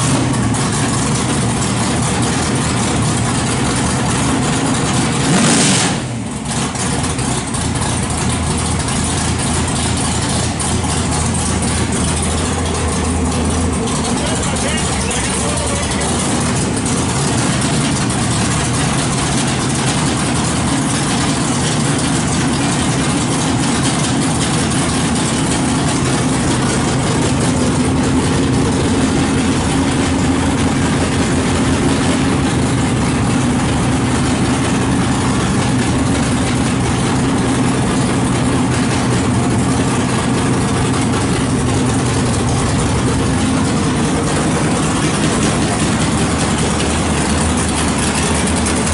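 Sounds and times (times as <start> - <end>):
loud car engine idling: 0.0 - 48.9.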